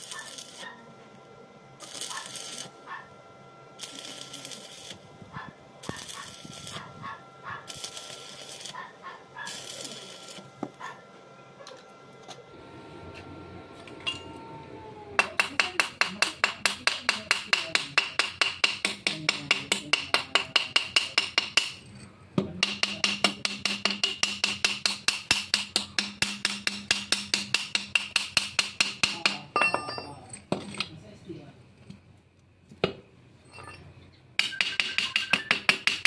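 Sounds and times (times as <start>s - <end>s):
steel rod tapping metal pipe: 15.2s - 21.8s, 22.6s - 30.1s, 34.4s - 36.0s.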